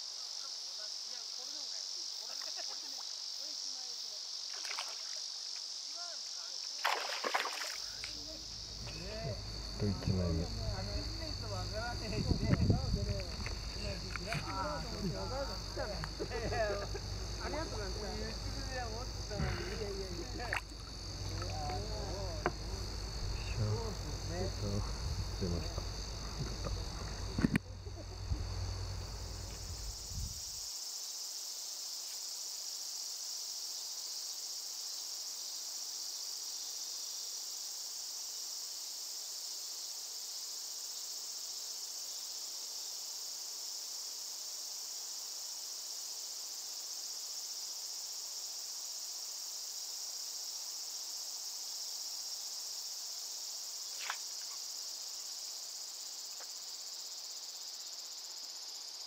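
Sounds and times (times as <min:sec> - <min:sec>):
insects chirping: 0:00.0 - 0:59.0.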